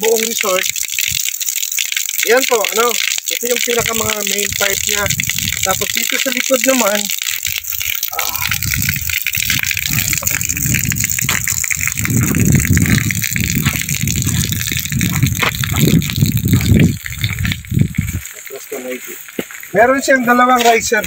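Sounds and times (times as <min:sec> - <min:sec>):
footsteps on gravel: 0:09.5 - 0:21.0.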